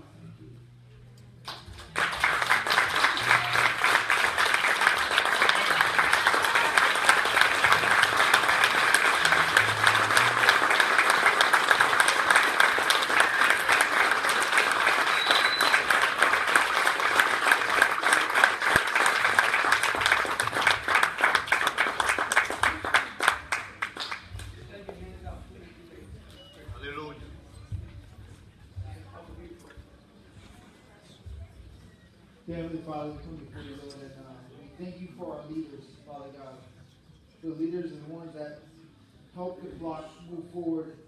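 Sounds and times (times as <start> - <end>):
congregation applauding: 1.5 - 24.6.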